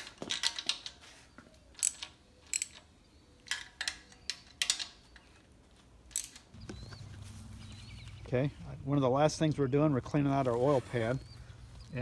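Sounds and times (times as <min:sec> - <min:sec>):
ratchet clicking on metal: 0:01.8 - 0:02.8.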